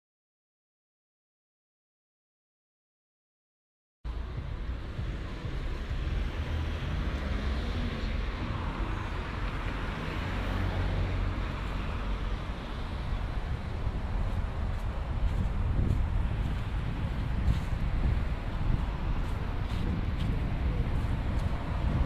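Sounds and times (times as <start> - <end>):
steady low rumble: 4.1 - 10.5, 11.1 - 22.0
car passing: 4.1 - 22.0.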